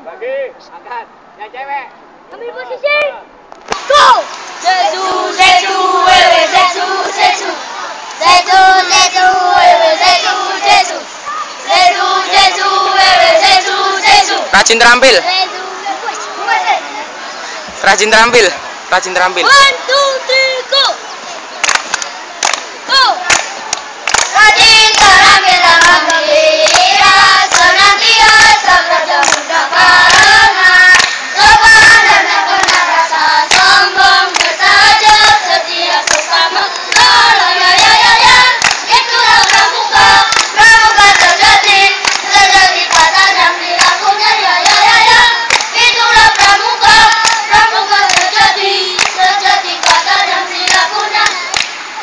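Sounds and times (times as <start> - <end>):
hand claps: 3.7 - 4.4, 21.6 - 22.7, 23.3 - 27.8, 29.2 - 31.2, 32.6 - 34.6, 36.0 - 37.2, 37.8 - 41.4, 42.0 - 44.0, 44.6 - 44.9, 45.5 - 48.4, 49.0 - 51.8
children singing in unison: 4.5 - 14.5, 15.2 - 17.7, 24.2 - 51.8.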